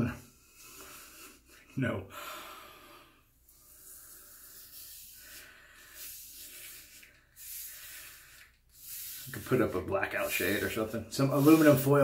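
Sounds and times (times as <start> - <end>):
razor scraping stubble: 4.4 - 12.0.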